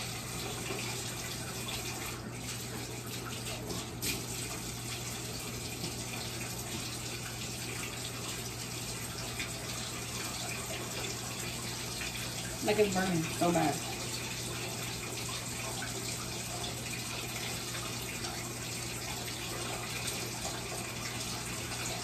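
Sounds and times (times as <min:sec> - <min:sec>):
water running from tap: 0:00.0 - 0:22.0.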